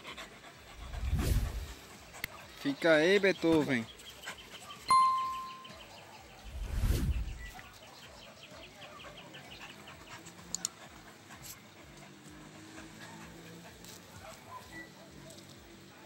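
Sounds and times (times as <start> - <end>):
faint rapid high chirping: 4.8 - 6.0.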